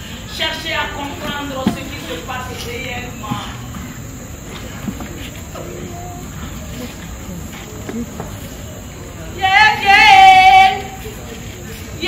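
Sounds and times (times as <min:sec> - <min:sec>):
faint stage sound: 0:00.0 - 0:12.0.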